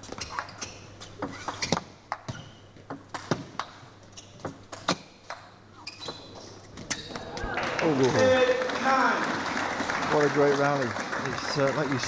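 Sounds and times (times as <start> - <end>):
table tennis ball hitting rackets: 1.2 - 5.6.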